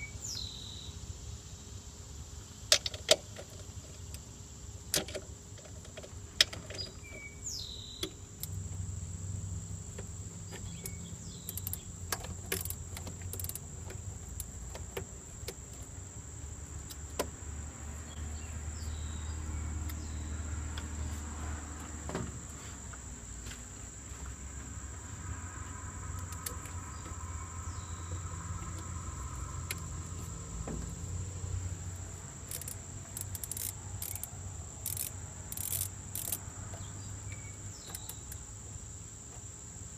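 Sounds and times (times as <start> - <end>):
insects droning: 0.0 - 39.9
hand tools clicking on engine: 4.9 - 7.3, 9.9 - 16.0, 32.0 - 38.4.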